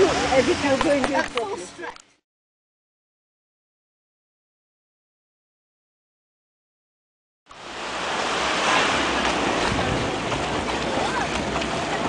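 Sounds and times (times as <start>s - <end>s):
small waves lapping shore: 7.5s - 12.0s
wind on microphone: 7.6s - 12.0s.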